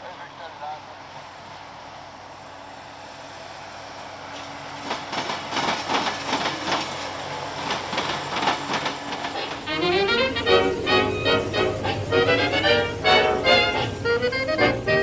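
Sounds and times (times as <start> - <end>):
train wheels clacking over crossing: 4.3 - 14.0.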